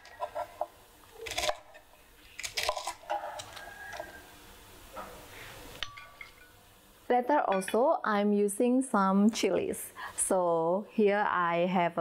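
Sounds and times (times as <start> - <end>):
knife slicing cabbage: 0.0 - 1.7.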